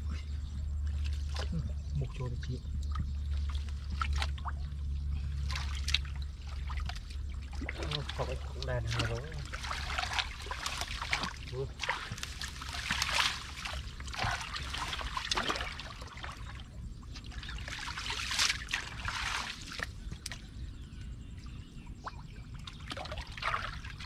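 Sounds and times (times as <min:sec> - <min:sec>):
low rumble: 0:00.0 - 0:24.0
shallow water splashing: 0:00.7 - 0:20.9, 0:22.0 - 0:24.0.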